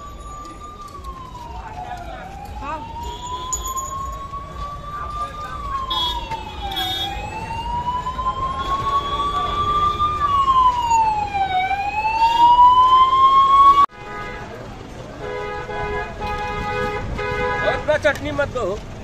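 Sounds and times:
emergency siren wailing: 0.0 - 13.9
vehicle horn: 5.9 - 7.2, 15.2 - 17.9.

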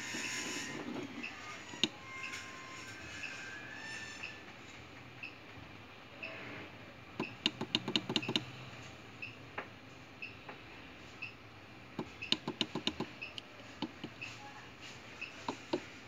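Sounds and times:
keypad button clicks: 7.2 - 8.5.

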